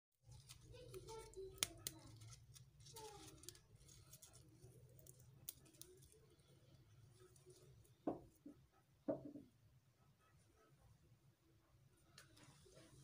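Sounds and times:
leaf stalks snapping: 0.4 - 4.3.

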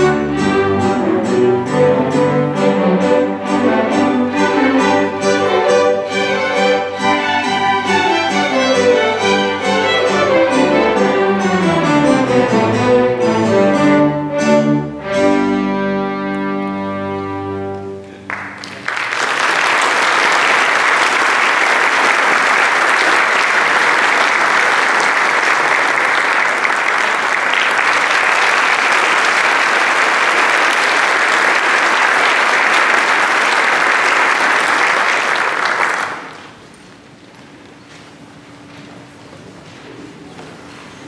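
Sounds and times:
string orchestra chord: 0.0 - 18.2
audience applauding: 18.1 - 36.6.

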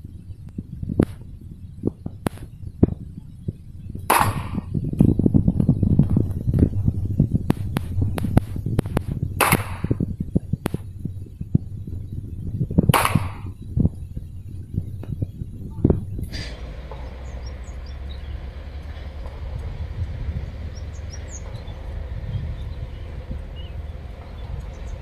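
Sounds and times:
loud pistol shots with echo: 4.1 - 4.7, 9.4 - 10.0.

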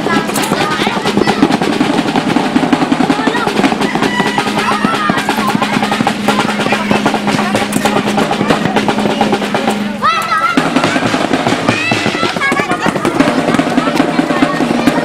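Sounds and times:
high voices calling out: 0.0 - 15.0
rapid drum roll: 0.0 - 15.0.

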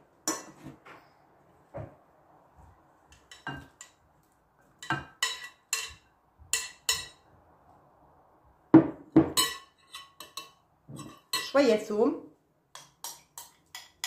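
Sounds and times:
utensil tapping glass bowl: 4.8 - 7.2.

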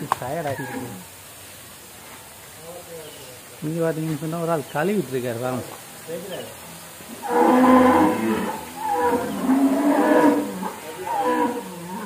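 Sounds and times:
cow mooing: 7.2 - 12.0.

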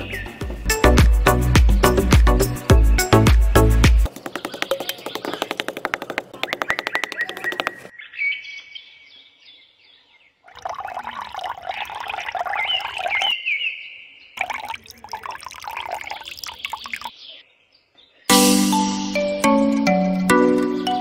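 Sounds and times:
birds chirping: 0.0 - 18.4
rapid clicking: 4.0 - 7.9
liquid pouring into bottle cap: 10.5 - 13.3, 14.4 - 17.1.

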